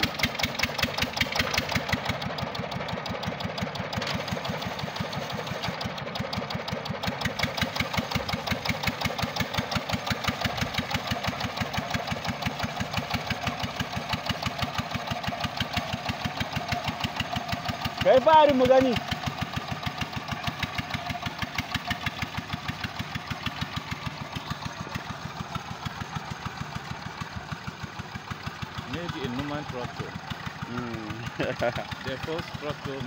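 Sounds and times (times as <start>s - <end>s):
tractor engine pulsing under load: 0.0s - 33.0s.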